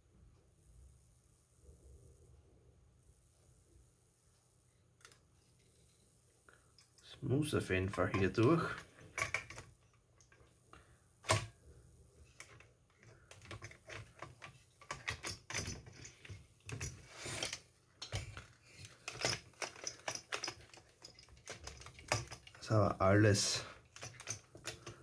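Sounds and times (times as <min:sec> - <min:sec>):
plastic parts clicking and knocking: 0:07.8 - 0:11.6, 0:12.2 - 0:25.0.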